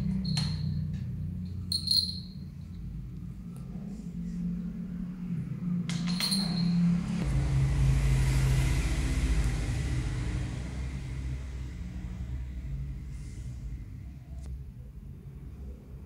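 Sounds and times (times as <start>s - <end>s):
small metallic jingle: 0.0s - 2.8s, 5.9s - 7.0s
passing vehicle engine rumble: 0.0s - 16.0s.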